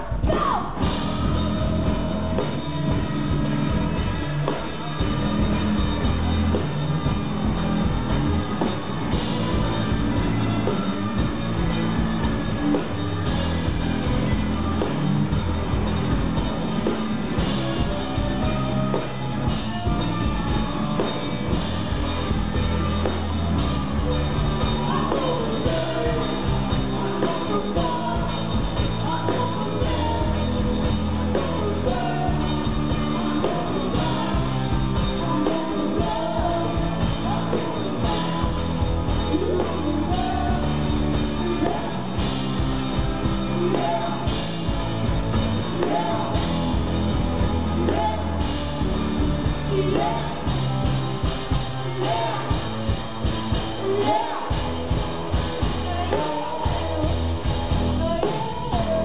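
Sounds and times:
woman singing lead: 0.0 - 5.5, 16.8 - 48.6, 53.5 - 59.0
drums: 0.0 - 59.0
electric guitars: 0.0 - 59.0
keyboard: 0.0 - 59.0.

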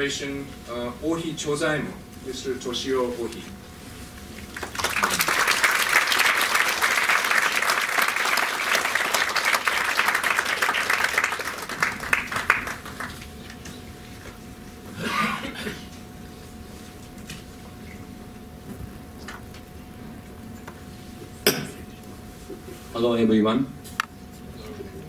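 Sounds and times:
audience applauding: 4.5 - 13.6.

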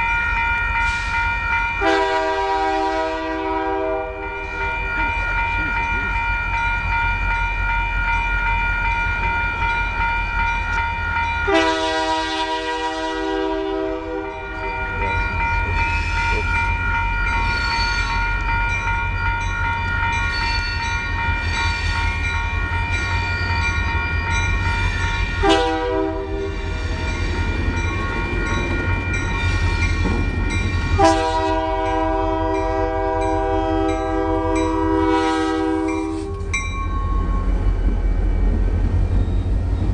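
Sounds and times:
crossing warning bell ringing: 0.0 - 39.9
locomotive engine rumbling: 0.0 - 39.9
locomotive air horn blasts: 1.8 - 4.3, 11.5 - 14.5, 25.4 - 26.6, 31.0 - 36.5.

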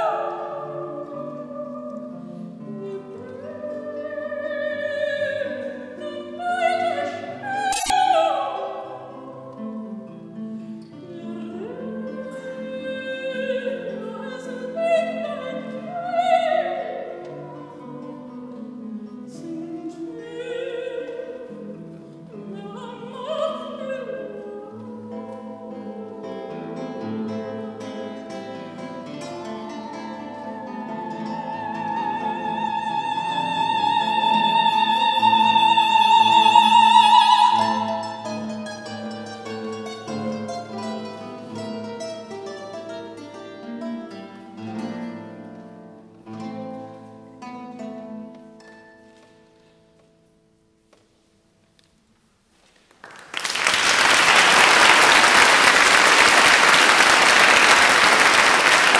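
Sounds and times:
classical guitar playing: 0.0 - 53.0
audience applause: 52.9 - 58.9.

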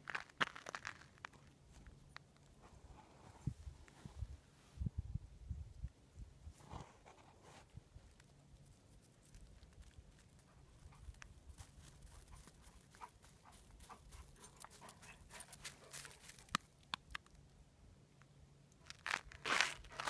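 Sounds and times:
footsteps crunching on snow: 15.3 - 16.5, 18.9 - 20.0.

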